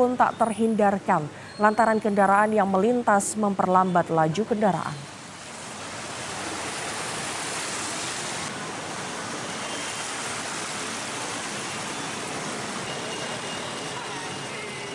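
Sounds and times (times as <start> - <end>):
vehicles wading through floodwater: 5.0 - 14.9.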